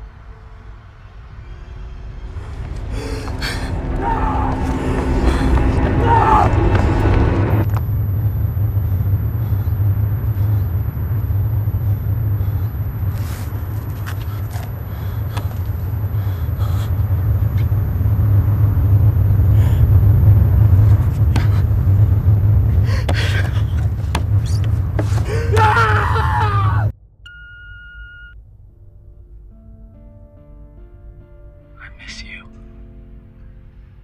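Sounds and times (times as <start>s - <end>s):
loud low rumble: 0.0s - 27.0s.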